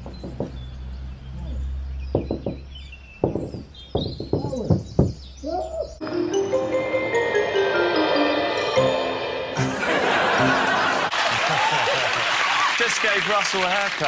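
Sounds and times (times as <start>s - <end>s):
knocking on a door: 0.0s - 0.6s, 2.1s - 5.3s
high chirping: 0.0s - 9.7s
music: 6.0s - 11.1s.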